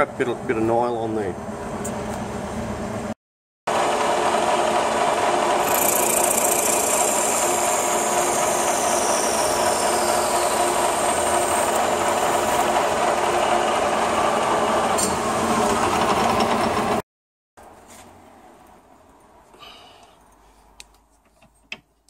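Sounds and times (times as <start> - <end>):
lathe running: 3.7 - 17.0
high whine sliding down: 6.6 - 16.1.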